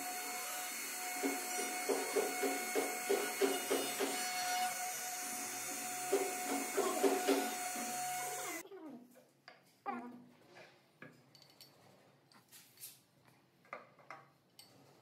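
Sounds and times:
router whining: 0.0s - 8.6s.

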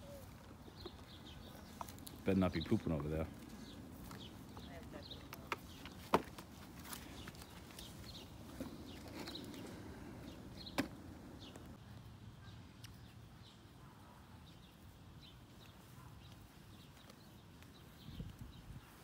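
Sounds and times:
small birds chirping: 0.0s - 19.0s
wind on microphone: 18.0s - 19.0s.

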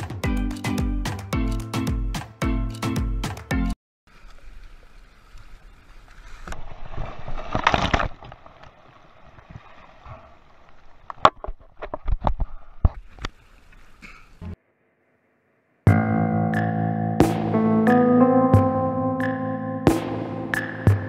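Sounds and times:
water splashing against kayak hull: 6.2s - 12.2s.

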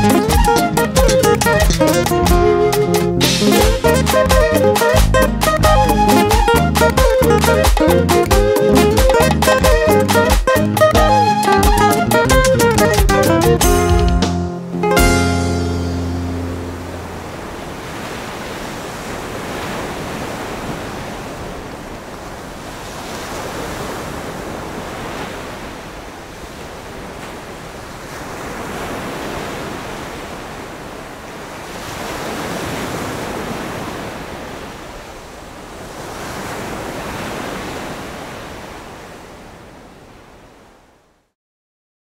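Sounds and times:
sea waves breaking on beach: 14.6s - 41.0s.

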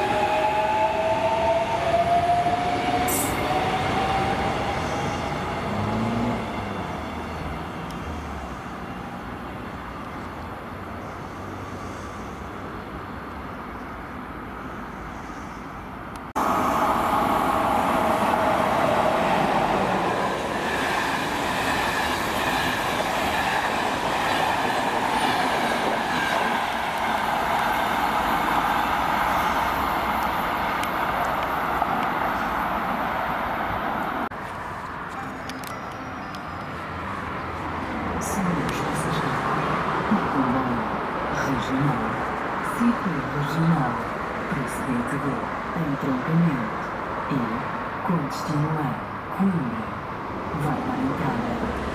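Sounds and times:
electric train running: 16.4s - 32.8s
train wheels rushing on rails: 16.4s - 34.3s.

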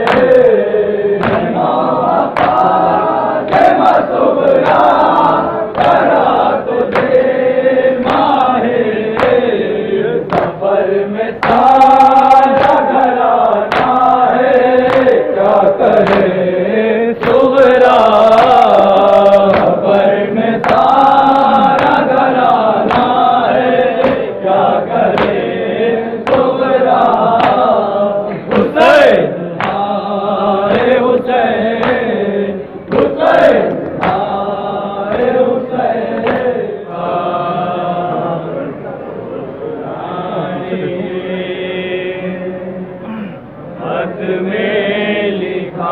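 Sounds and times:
hands slapping chests: 0.0s - 0.6s, 1.2s - 7.2s, 8.0s - 8.4s, 9.1s - 9.5s, 10.2s - 10.6s, 11.4s - 13.0s, 13.6s - 16.4s, 19.5s - 19.9s, 20.6s - 23.2s, 24.0s - 24.3s, 25.1s - 25.4s, 26.2s - 27.7s, 28.4s - 29.9s, 30.7s - 32.1s, 32.9s - 34.4s, 35.1s - 36.6s
men chanting together: 0.0s - 38.8s, 39.8s - 45.9s.

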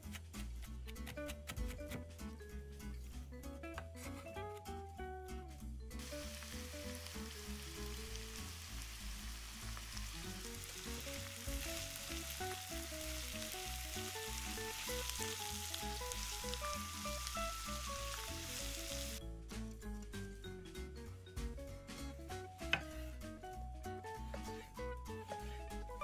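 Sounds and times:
background music: 0.0s - 26.0s
vegetables sizzling in frying pan: 6.0s - 19.2s.

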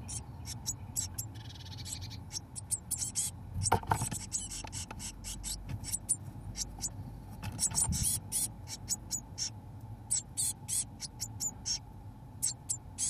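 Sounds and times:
high begging calls: 0.0s - 7.0s, 7.6s - 13.0s
nestlings scratching and shuffling: 1.9s - 9.0s.

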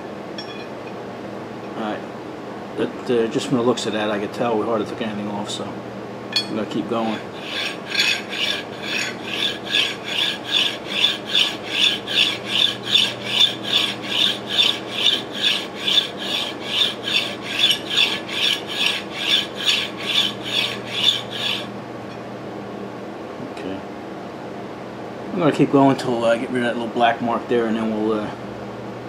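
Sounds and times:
metal rasping on a file: 7.0s - 21.7s.

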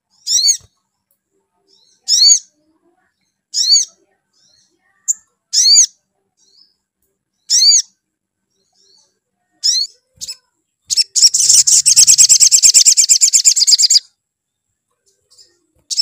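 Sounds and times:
bird chirps: 0.0s - 0.9s, 1.6s - 2.6s, 3.2s - 14.1s, 14.8s - 16.0s
fast bird trill: 9.6s - 14.0s.

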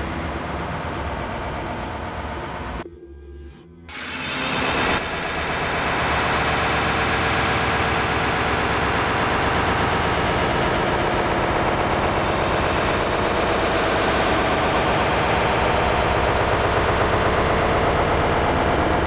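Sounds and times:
loud static noise: 3.9s - 19.0s.

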